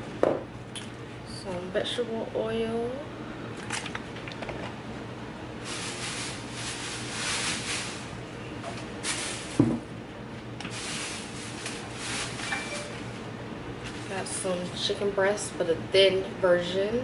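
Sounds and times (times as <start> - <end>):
plastic bags rustling: 5.6 - 9.9, 10.6 - 13.2.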